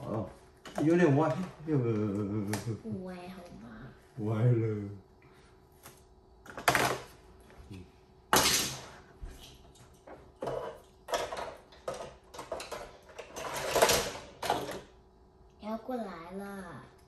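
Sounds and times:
plastic toys clattering: 10.3 - 15.0.

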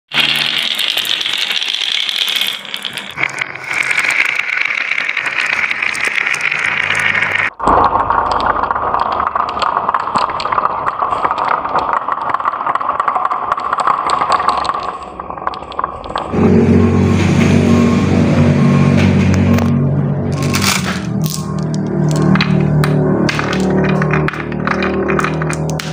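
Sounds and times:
marbles rattling down wooden tracks: 0.1 - 16.4, 20.3 - 25.9.

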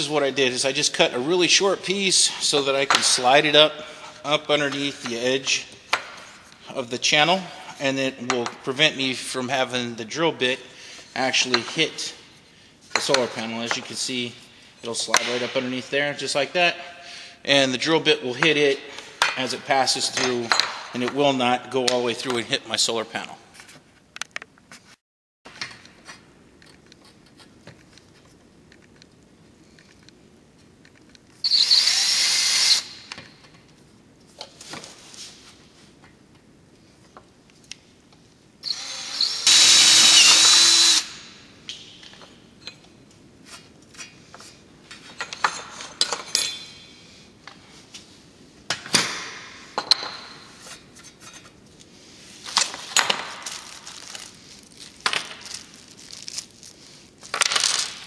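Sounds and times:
cordless drill boring into metal: 31.5 - 33.0, 38.7 - 41.2.

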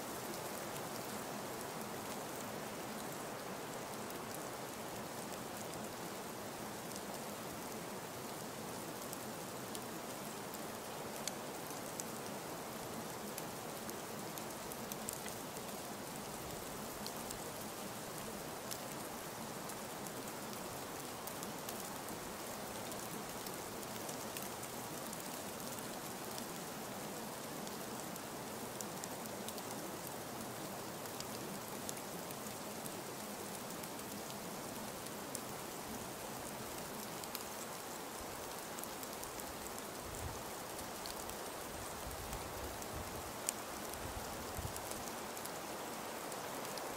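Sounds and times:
raindrop ticks: 37.2 - 37.6, 40.8 - 41.6, 44.6 - 46.9.

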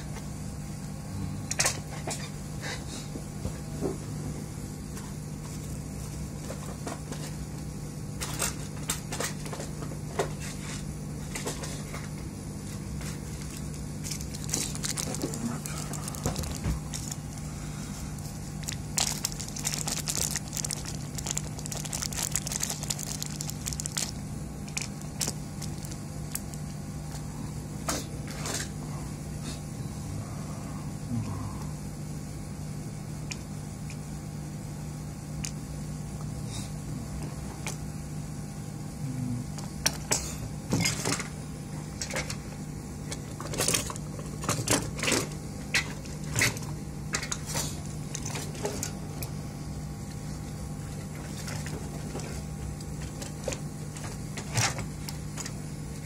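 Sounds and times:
steady low hum: 0.0 - 56.0
small clicks and crackling: 13.4 - 17.4, 18.6 - 26.8.

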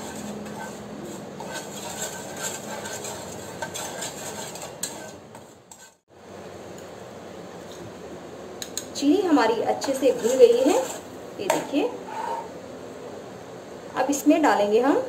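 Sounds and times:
spoon scraping and clinking in pan: 0.0 - 6.0, 9.8 - 11.1.

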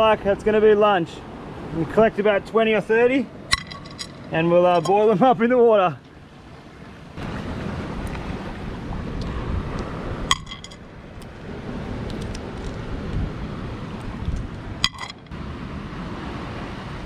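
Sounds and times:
wind: 0.0 - 17.0
snails clinking in metal pot: 3.5 - 5.0, 10.3 - 10.8, 14.8 - 15.3.

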